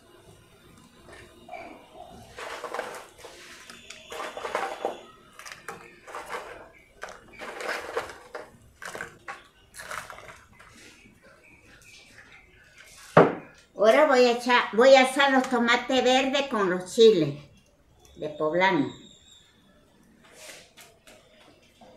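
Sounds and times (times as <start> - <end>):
dried chiles rustling and crackling: 0.6 - 14.3.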